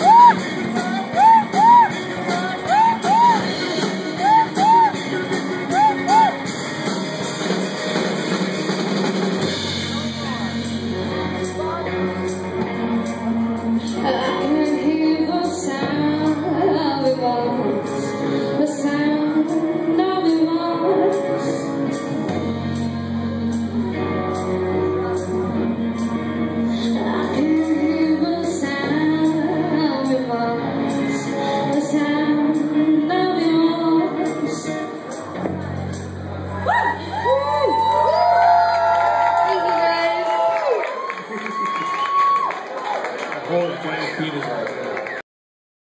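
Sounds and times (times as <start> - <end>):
woman singing: 0.0 - 5.0, 13.8 - 22.9, 26.0 - 35.0
bass guitar long low notes: 0.0 - 39.2
electric guitar: 0.0 - 42.9
drums: 0.0 - 43.0.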